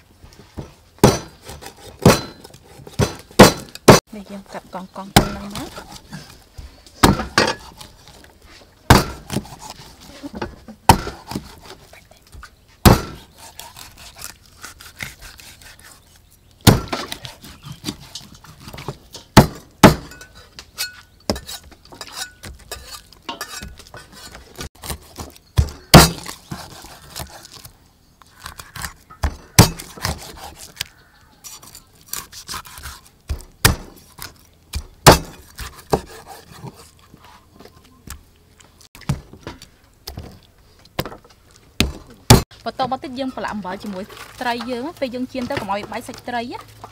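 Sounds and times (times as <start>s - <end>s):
knife chopping fish on wood: 8.9s - 9.8s, 12.8s - 15.7s, 28.5s - 30.9s, 32.1s - 36.8s.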